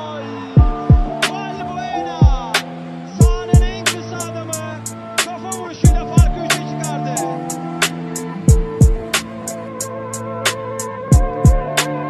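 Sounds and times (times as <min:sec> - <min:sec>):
deep kick drums: 0:00.6 - 0:01.2, 0:02.2 - 0:02.5, 0:03.2 - 0:03.8, 0:05.9 - 0:06.5, 0:08.5 - 0:09.1, 0:11.1 - 0:11.7.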